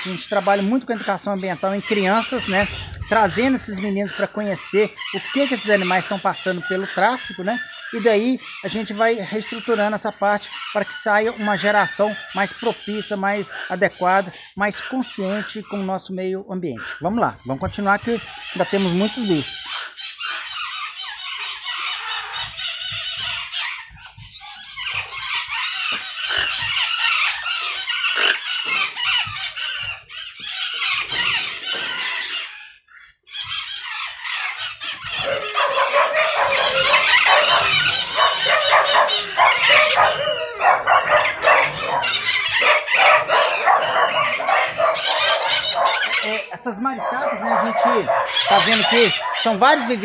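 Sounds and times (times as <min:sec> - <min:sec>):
parakeets screeching and chattering: 0:00.0 - 0:16.1, 0:16.7 - 0:50.0.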